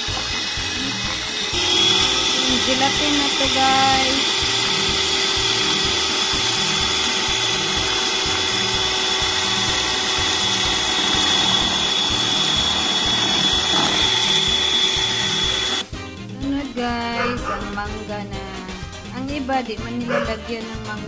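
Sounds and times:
electric mixer whipping: 0:00.0 - 0:15.9.

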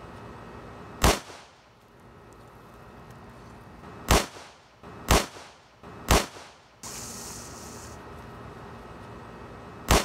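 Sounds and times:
steady hiss: 0:03.4 - 0:08.2.

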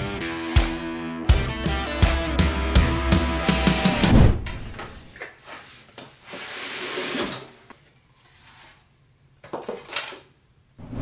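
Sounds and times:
sliding scrape: 0:05.6 - 0:07.6.

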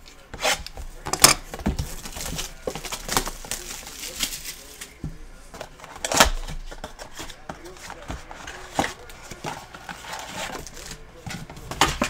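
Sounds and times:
shrink-wrap crinkling: 0:00.0 - 0:05.0
cardboard boxes scuffing and knocking: 0:00.4 - 0:03.7.

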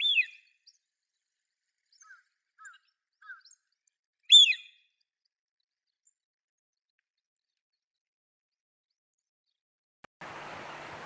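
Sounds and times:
duck whistled call: 0:04.3 - 0:04.8.

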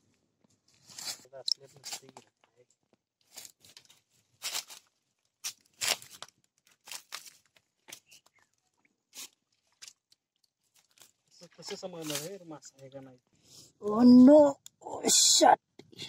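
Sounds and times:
dry leaves and twigs crunching: 0:00.6 - 0:02.4, 0:03.1 - 0:12.4.

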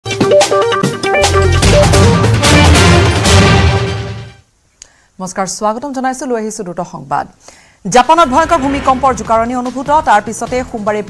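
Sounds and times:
drum hits: 0:00.2 - 0:04.3, 0:08.2 - 0:10.7
deep bass note: 0:01.2 - 0:03.8.

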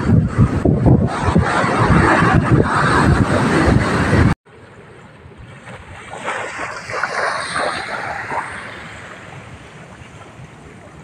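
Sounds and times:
small waves breaking on beach: 0:04.5 - 0:11.0.

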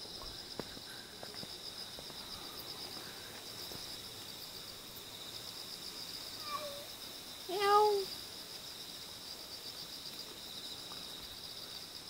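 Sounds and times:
night insects chirring: 0:00.0 - 0:12.0
cat meowing faintly: 0:06.4 - 0:06.9.

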